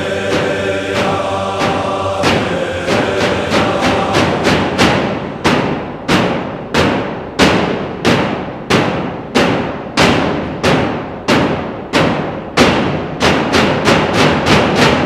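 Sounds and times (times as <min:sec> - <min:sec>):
heavy drum strikes: 0:00.0 - 0:15.0.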